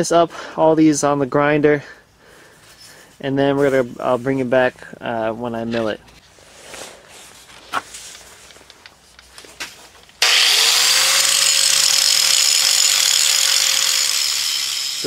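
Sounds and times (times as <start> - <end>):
grinder grinding metal: 10.2 - 15.0.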